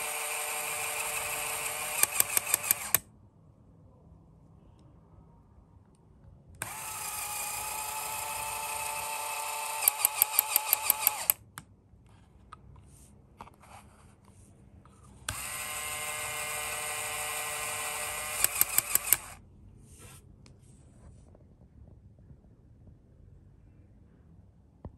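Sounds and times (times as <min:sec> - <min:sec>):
small electric motor whining: 0:00.0 - 0:03.0, 0:06.6 - 0:11.4, 0:15.3 - 0:19.4
sharp mechanism clicks: 0:00.8 - 0:03.0, 0:09.0 - 0:11.4, 0:16.9 - 0:19.4.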